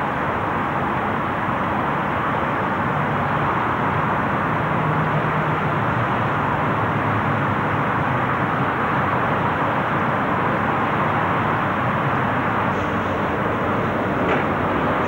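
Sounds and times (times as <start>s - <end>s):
lorry diesel engines running: 0.0s - 15.0s
traffic noise hiss: 0.0s - 15.0s.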